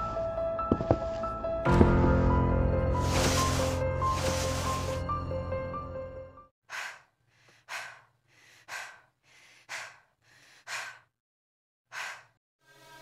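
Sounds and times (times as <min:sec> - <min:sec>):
person breathing heavily: 0:01.0 - 0:05.0, 0:06.7 - 0:11.2, 0:11.9 - 0:12.4.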